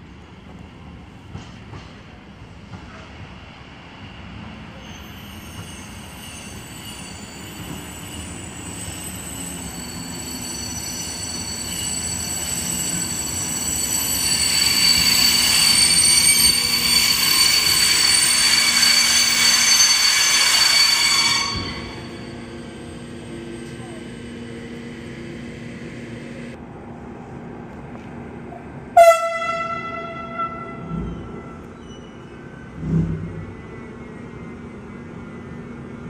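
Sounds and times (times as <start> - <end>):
freight train rumble: 0.0 - 36.0
high-pitched wheel squeal: 4.7 - 23.8, 30.8 - 32.6.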